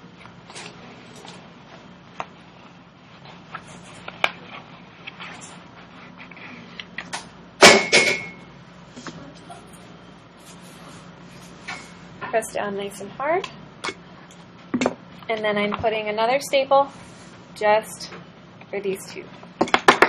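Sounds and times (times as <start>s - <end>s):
paper rustling: 2.6s - 6.9s.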